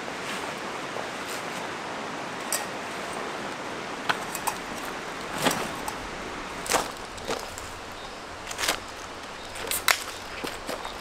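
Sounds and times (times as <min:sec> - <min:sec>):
steady background hiss: 0:00.0 - 0:11.0
gear clinking on stones: 0:04.1 - 0:11.0.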